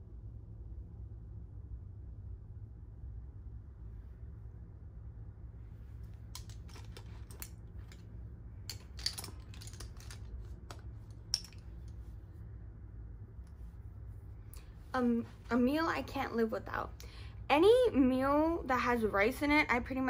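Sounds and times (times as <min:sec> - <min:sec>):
low room hum: 0:00.0 - 0:20.0
small objects clicking and tapping: 0:06.1 - 0:08.1, 0:08.7 - 0:12.0.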